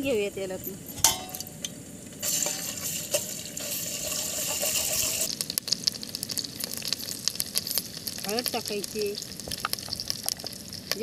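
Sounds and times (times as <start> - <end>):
paste sizzling in hot oil: 0.8 - 11.0
oil pops and crackles: 0.9 - 11.0
ladle clinking against pot: 1.0 - 1.7.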